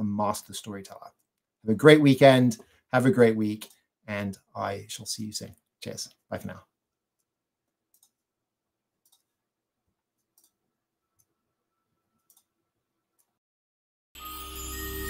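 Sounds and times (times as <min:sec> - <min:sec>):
faint sharp clicks: 0:09.0 - 0:09.3
music: 0:14.2 - 0:15.0.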